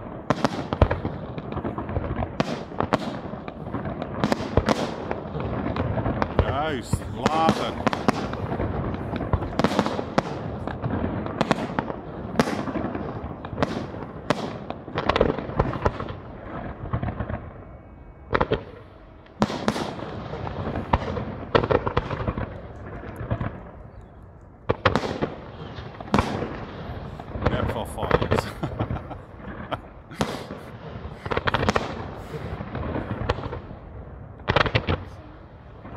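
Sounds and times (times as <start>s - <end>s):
firework shells bursting: 24.7s - 33.7s.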